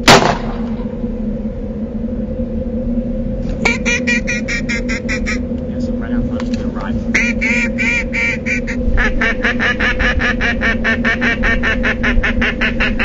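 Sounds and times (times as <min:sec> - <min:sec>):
steady low hum: 0:00.0 - 0:13.0
duck call quacking: 0:03.6 - 0:05.4, 0:07.1 - 0:13.0.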